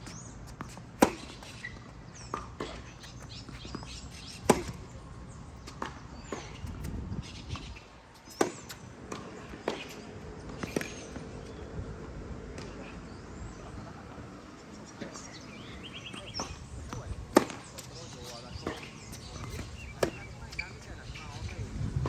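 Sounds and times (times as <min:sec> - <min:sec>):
racket hitting tennis ball: 0:00.5 - 0:04.9, 0:05.6 - 0:11.6, 0:15.0 - 0:21.4.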